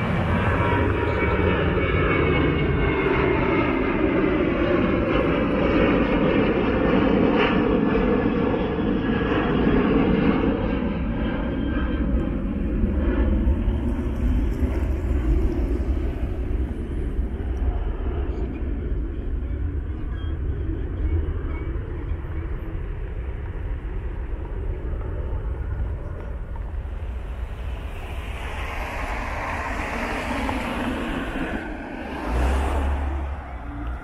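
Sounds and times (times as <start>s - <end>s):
jet airliner engines roaring: 0.0s - 34.0s.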